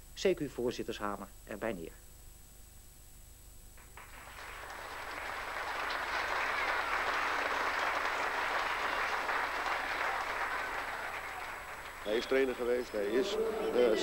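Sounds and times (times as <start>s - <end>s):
audience clapping: 3.8s - 14.0s.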